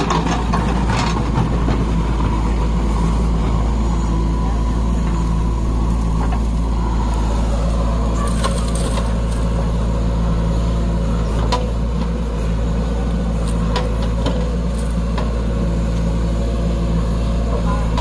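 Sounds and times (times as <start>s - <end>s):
diesel engine running: 0.0s - 18.0s.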